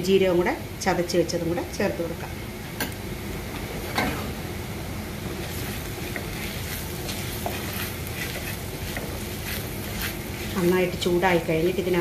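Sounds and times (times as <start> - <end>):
onions sizzling in oil: 5.0 - 12.0
wooden spatula scraping pan: 5.3 - 12.0.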